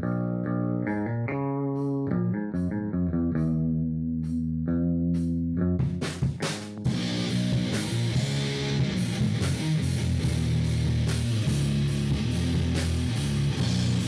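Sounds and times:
heavy metal music: 0:05.9 - 0:14.0.

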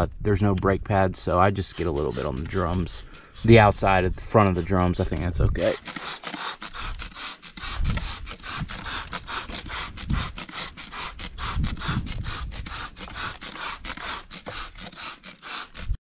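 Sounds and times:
spray bottle hissing squirts: 0:01.7 - 0:03.9, 0:05.6 - 0:16.0.

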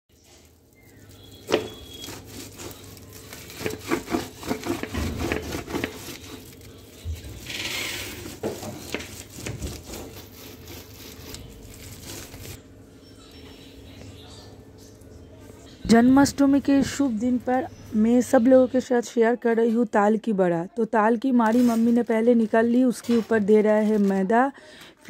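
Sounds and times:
fruit rubbed against woven basket: 0:00.2 - 0:12.6.

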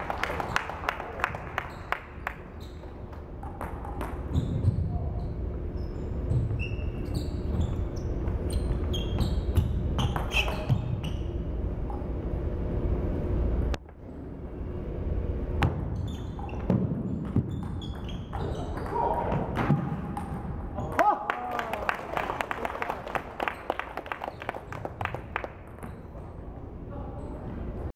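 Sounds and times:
low room rumble: 0:00.0 - 0:17.3.

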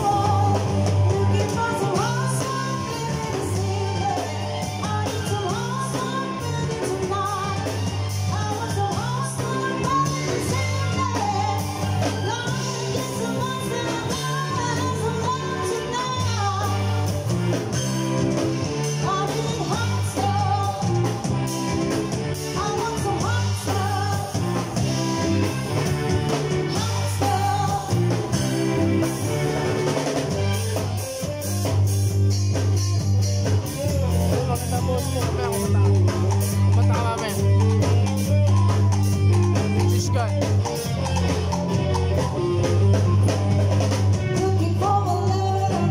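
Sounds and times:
women singing: 0:00.0 - 0:17.2, 0:19.0 - 0:21.2, 0:22.5 - 0:25.0, 0:26.6 - 0:29.0, 0:43.2 - 0:45.9
bass guitar: 0:00.0 - 0:45.9
drum kit: 0:00.0 - 0:45.9
electric guitar: 0:00.0 - 0:45.9
keyboard: 0:00.0 - 0:45.9.

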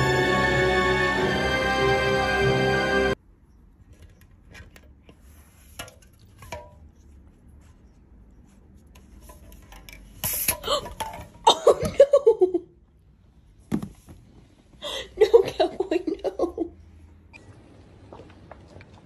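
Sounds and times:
person laughing loudly: 0:15.2 - 0:16.7.

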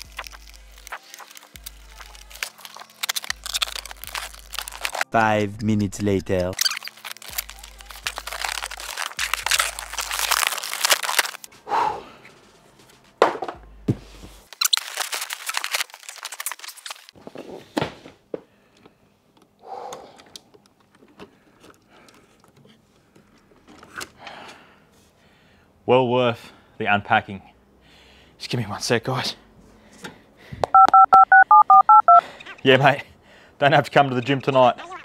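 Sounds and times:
packaging crinkling and tearing: 0:00.0 - 0:05.1, 0:06.5 - 0:11.5, 0:14.5 - 0:17.2.

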